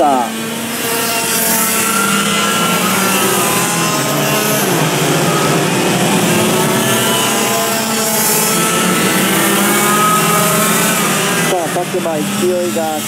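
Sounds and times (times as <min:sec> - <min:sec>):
kart engines revving: 0:00.0 - 0:13.0.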